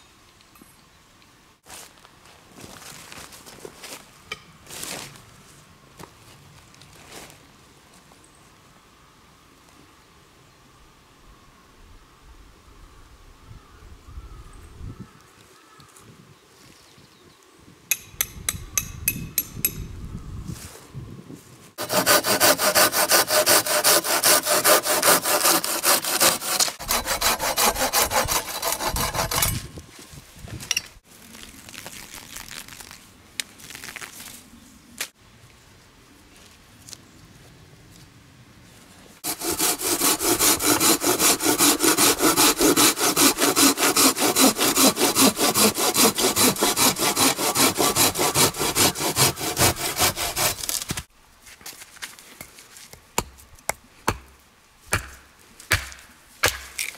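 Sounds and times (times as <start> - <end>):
hand saw cutting wood: 21.8 - 29.7, 39.2 - 51.1.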